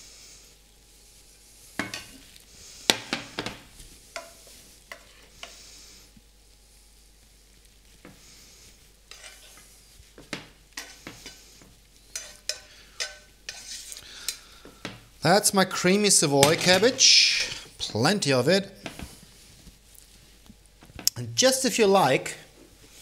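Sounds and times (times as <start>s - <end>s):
utensil scraping a frying pan: 4.1s - 5.7s, 9.1s - 14.5s.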